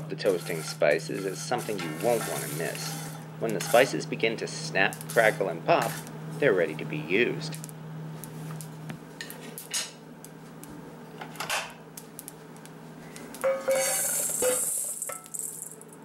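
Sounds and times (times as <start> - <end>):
spices snapping and popping: 11.9 - 13.4.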